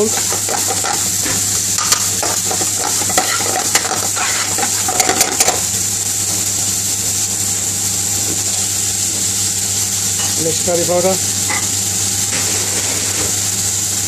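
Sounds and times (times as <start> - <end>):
metal spoon scraping a pan: 0.0 - 5.6
vegetables sizzling in hot oil: 0.0 - 14.0.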